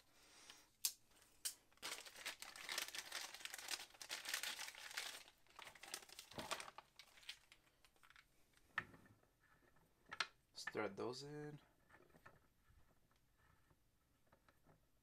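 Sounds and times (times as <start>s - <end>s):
plastic bag crinkling: 1.7s - 8.2s.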